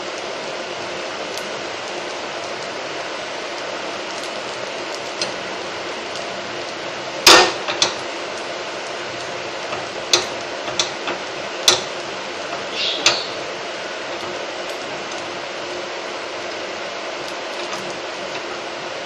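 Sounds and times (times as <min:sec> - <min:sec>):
frying sizzle: 0:00.0 - 0:19.0.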